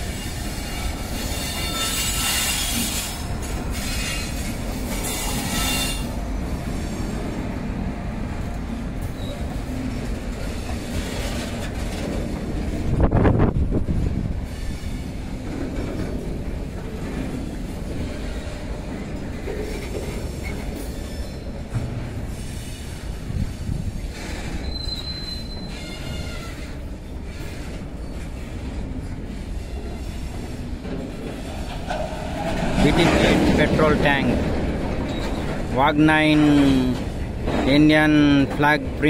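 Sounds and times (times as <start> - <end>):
high-pitched wheel squeal: 0.2 - 6.1, 24.4 - 26.7
train wheels clattering over rail joints: 9.0 - 39.0.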